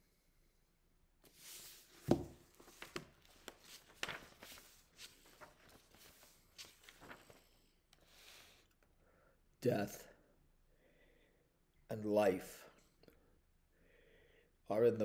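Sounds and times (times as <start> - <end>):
paper rustling: 1.3 - 8.6.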